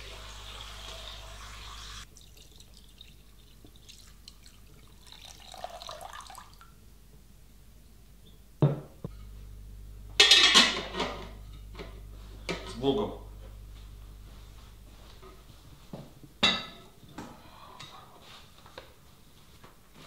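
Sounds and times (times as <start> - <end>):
water pouring into pot: 0.0 - 6.7.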